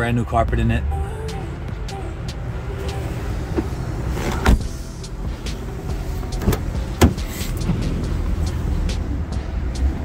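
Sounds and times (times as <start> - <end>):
steady low rumble: 0.3 - 10.0
car door shutting: 2.8 - 8.1.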